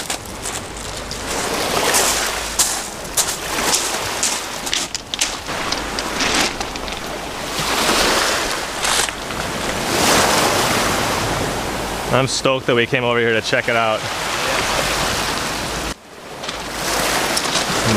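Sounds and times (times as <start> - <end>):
waves washing over pebbles: 0.0 - 17.9
sharp clicks of pebbles: 2.0 - 7.4.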